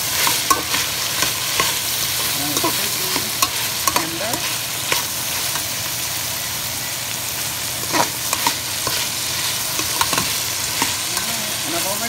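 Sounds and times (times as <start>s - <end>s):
meat and onions sizzling in oil: 0.0s - 12.0s
spoon scraping a metal pot: 7.8s - 11.4s.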